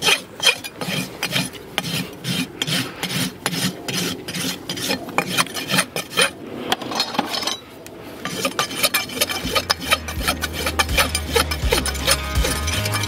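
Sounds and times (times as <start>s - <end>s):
hoof rasp filing: 0.0s - 6.4s, 8.2s - 13.0s.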